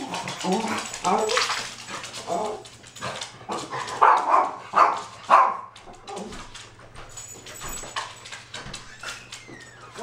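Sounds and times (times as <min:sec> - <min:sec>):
small dogs barking: 0:03.9 - 0:05.7.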